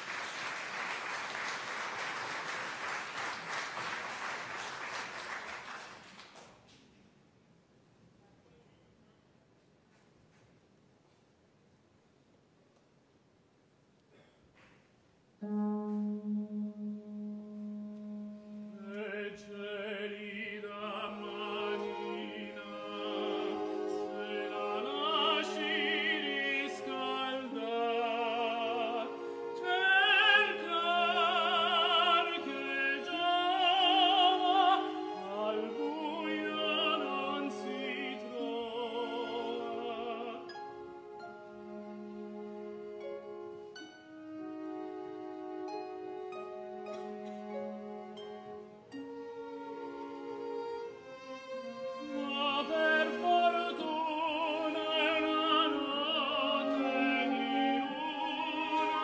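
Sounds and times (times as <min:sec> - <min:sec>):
orchestra playing: 0:15.4 - 0:59.0
tenor singing opera: 0:16.8 - 0:43.5, 0:44.3 - 0:59.0.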